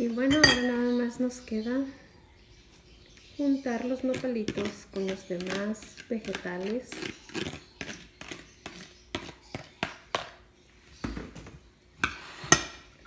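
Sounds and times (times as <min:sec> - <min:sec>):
spoon clinking on glass: 0:00.3 - 0:00.8.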